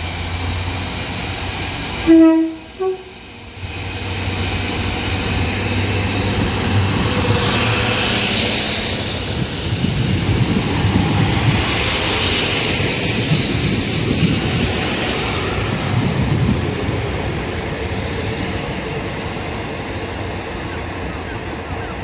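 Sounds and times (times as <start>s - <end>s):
train rumbling past: 0.0s - 22.0s
high hiss: 11.5s - 17.8s.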